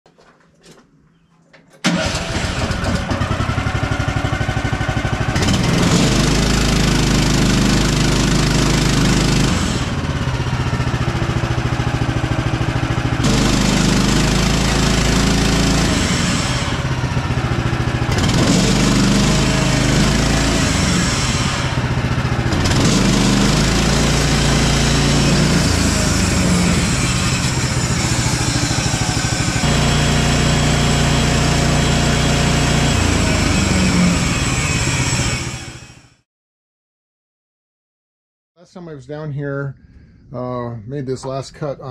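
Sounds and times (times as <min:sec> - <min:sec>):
sawmill engine running: 0:01.8 - 0:36.2
saw blade cutting log: 0:05.4 - 0:10.1, 0:13.2 - 0:17.0, 0:18.1 - 0:21.8, 0:22.5 - 0:36.0.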